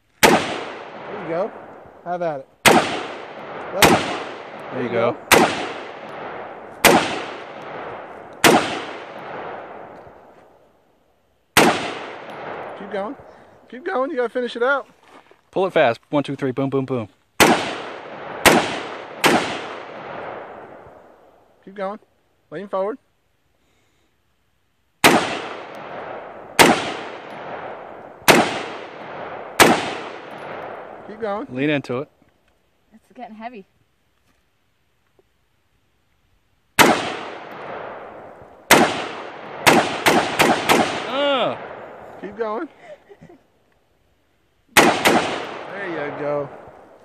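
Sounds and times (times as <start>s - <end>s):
gunshot echo: 0.2s - 1.8s, 2.6s - 10.2s, 11.6s - 13.4s, 17.4s - 21.1s, 25.0s - 31.5s, 36.8s - 42.6s, 44.7s - 47.0s
rifle shots: 0.2s - 1.8s, 2.6s - 10.0s, 11.5s - 13.3s, 17.4s - 21.0s, 25.0s - 31.5s, 36.8s - 42.6s, 44.7s - 47.0s.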